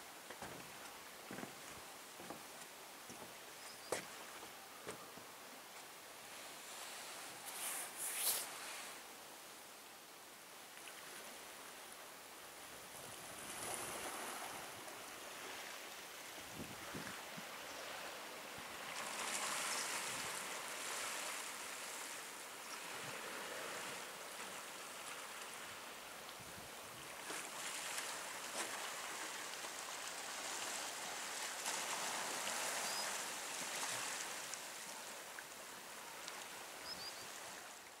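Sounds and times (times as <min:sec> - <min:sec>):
faint high chirps: 0:36.8 - 0:37.4.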